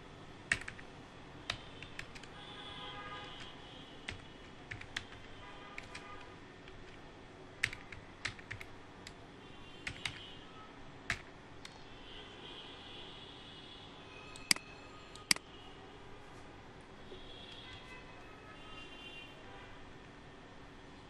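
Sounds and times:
computer keyboard key clicks: 7.6 - 9.2, 9.8 - 10.2, 11.1 - 11.8.

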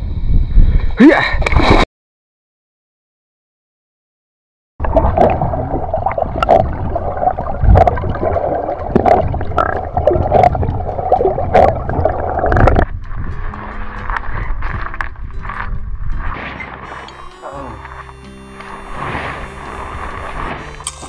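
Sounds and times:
underwater water rush: 4.8 - 13.0
underwater clicks and knocks: 9.0 - 13.3
background music: 16.4 - 21.0.

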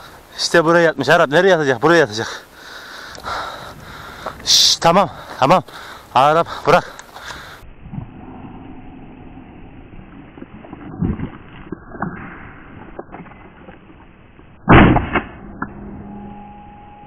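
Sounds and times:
shotgun blast: 14.7 - 15.8.

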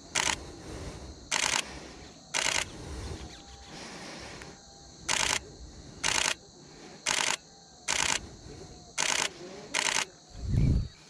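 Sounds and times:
camera shutter bursts: 0.1 - 0.4, 1.3 - 2.8, 5.1 - 5.4, 6.0 - 6.4, 7.1 - 8.2, 9.0 - 10.1.

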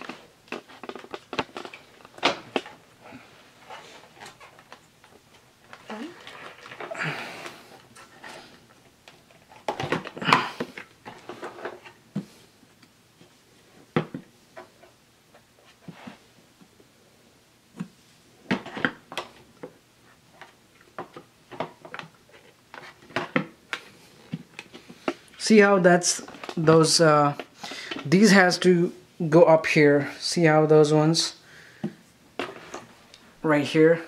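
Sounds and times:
plastic parts clicking and rattling: 0.0 - 2.8, 3.7 - 8.4.

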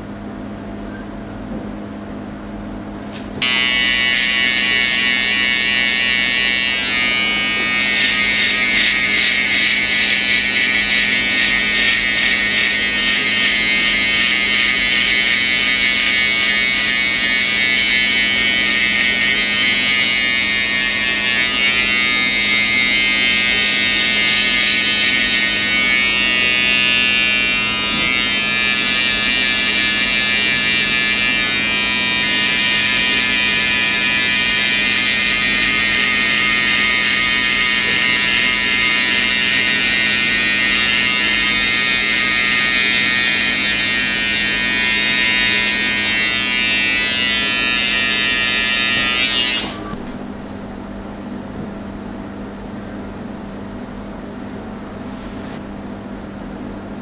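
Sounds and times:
hair clippers buzzing: 3.1 - 50.2.

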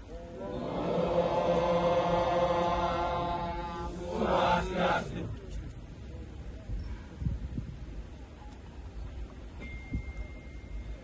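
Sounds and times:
voices chanting a long note: 0.0 - 5.4.

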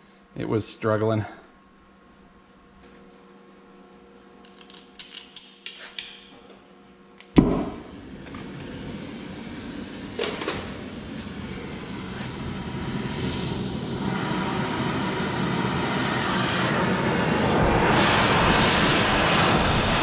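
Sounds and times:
flame hissing: 7.4 - 20.0.

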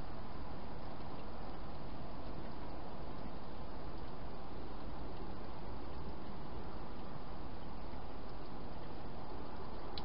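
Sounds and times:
microphone hiss: 0.0 - 10.0.

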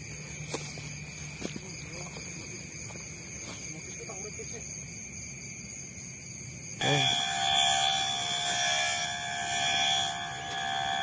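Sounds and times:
shrill electronic tone: 6.8 - 11.0.

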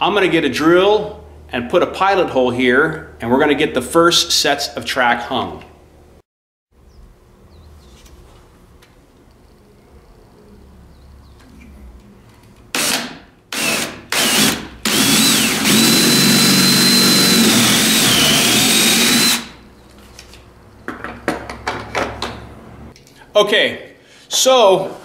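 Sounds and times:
cordless drill whining: 12.8 - 19.6.

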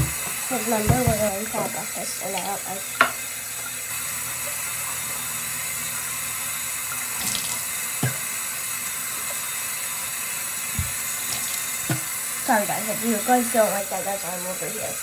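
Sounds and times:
tap running into sink: 0.0 - 3.8, 6.8 - 9.5, 10.6 - 12.2.

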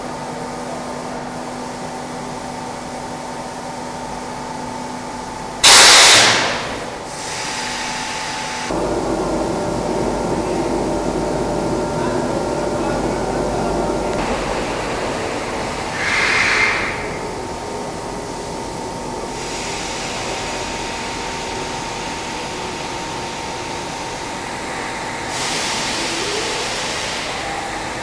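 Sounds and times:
loud hiss of air: 5.6 - 8.9, 14.1 - 28.0
machine humming: 8.4 - 28.0.

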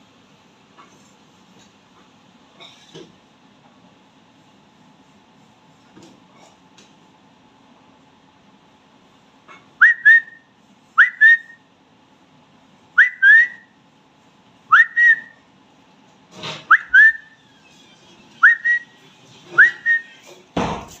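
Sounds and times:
parakeet whistling: 16.7 - 17.4, 18.4 - 19.0, 19.6 - 20.1
noisy knock: 20.6 - 21.0.

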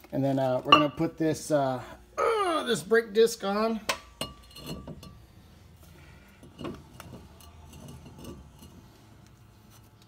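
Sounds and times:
metal rotor clinking on hub: 6.4 - 9.0.

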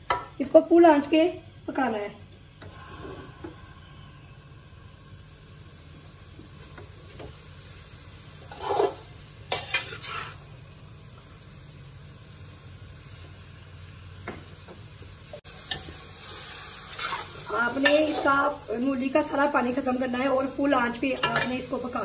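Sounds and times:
frying sizzle: 1.7 - 22.0
metal spoon scraping pan: 8.4 - 10.4, 16.9 - 18.4.

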